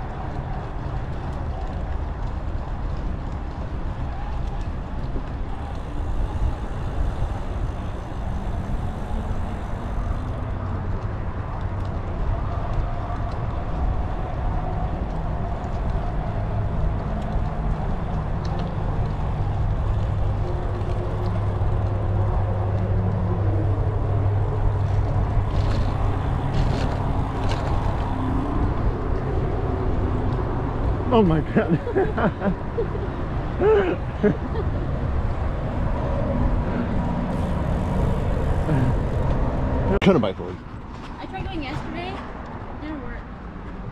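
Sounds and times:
wind on microphone: 0.0 - 40.0
bicycle tyre rumble: 0.0 - 43.9.

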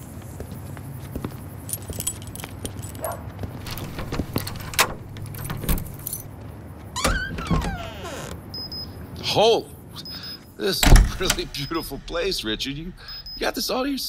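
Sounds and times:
keys jangling in door lock: 1.7 - 6.4, 10.8 - 11.9
door creaking open: 3.6 - 6.3, 7.0 - 8.5, 10.8 - 12.2.

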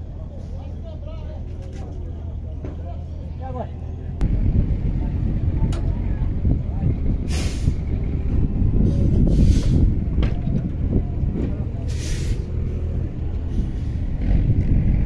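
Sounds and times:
faint voices: 0.0 - 14.6
large vehicle engine rumbling: 0.0 - 15.0
air release hissing: 7.3 - 7.8, 11.9 - 12.5.

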